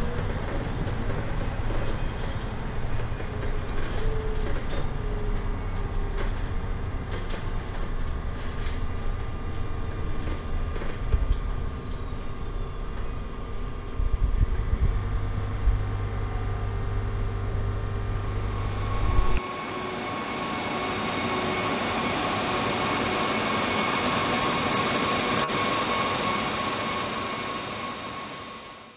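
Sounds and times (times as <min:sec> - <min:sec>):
bus road rumble: 0:00.0 - 0:20.4.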